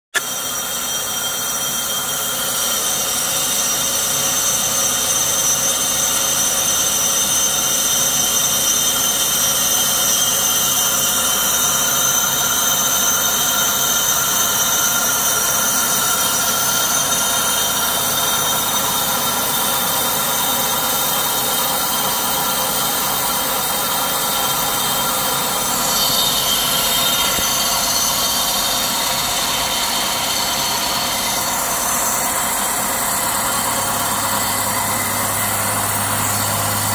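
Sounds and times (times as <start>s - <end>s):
metal lathe whining: 0.2s - 36.9s.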